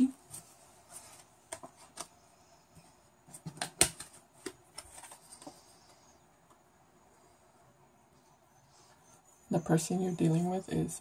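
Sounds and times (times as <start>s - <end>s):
cards clicking and tapping on table: 3.3s - 5.5s.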